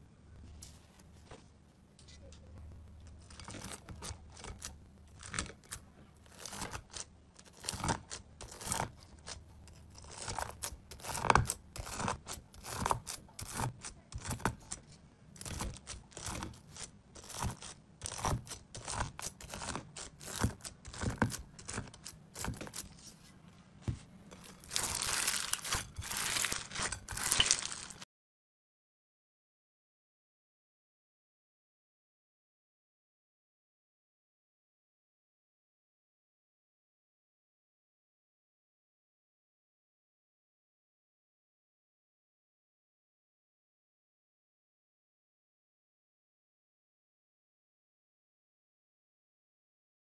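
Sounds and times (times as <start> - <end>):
blade cutting crunchy slime: 3.0 - 23.1, 24.3 - 28.0
hands squeezing crackling slime: 24.6 - 28.0.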